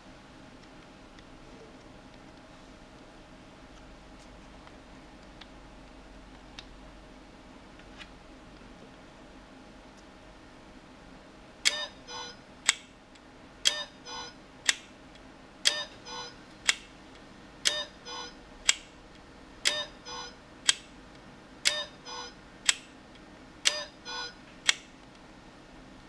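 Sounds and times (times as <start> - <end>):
kitchen timer alarm chime: 13.7 - 14.4, 15.7 - 16.4, 17.7 - 18.4, 19.7 - 20.4, 21.7 - 22.4, 23.7 - 24.4.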